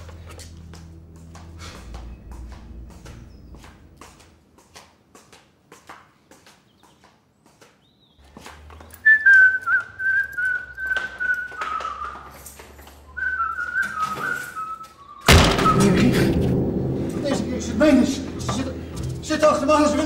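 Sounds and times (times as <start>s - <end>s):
footsteps: 0.0s - 20.0s
man whistling a tune: 9.0s - 12.4s, 13.1s - 15.8s
loud thump: 15.3s - 19.2s.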